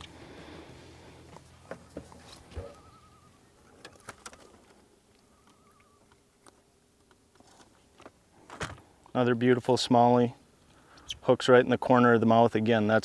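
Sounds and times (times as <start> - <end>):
faint wavering whistle: 2.5 - 3.6, 5.2 - 6.1.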